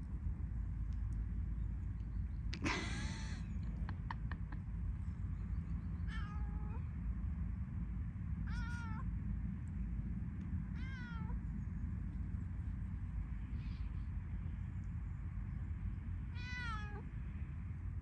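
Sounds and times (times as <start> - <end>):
steady low rumble: 0.0 - 18.0
cat meowing: 6.1 - 6.8, 8.5 - 9.0, 10.8 - 11.4, 16.4 - 17.0.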